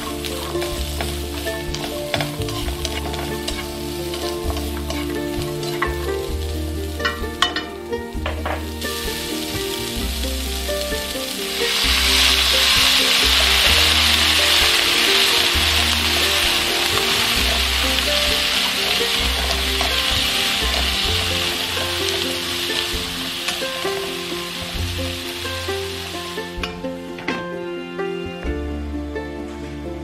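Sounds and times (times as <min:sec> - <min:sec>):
vegetables sizzling in oil: 0:00.0 - 0:26.8
water hissing in hot pan: 0:00.0 - 0:27.1
chopsticks clicking on pan: 0:00.4 - 0:06.1.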